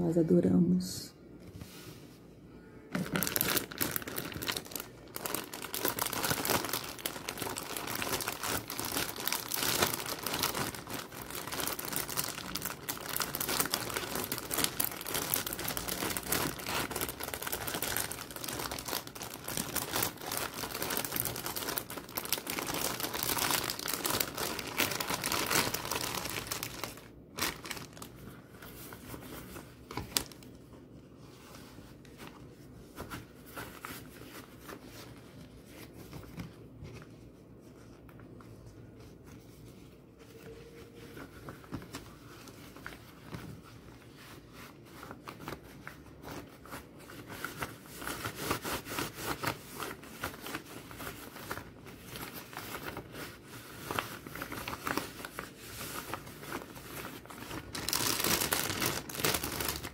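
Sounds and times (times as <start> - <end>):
soft handling noises: 1.3 - 5.3, 27.8 - 47.9
plastic packaging crinkling: 2.9 - 30.6, 40.4 - 59.9.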